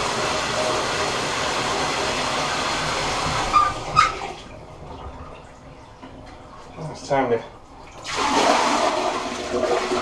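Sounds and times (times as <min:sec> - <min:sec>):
water running from faucet: 0:00.0 - 0:04.4.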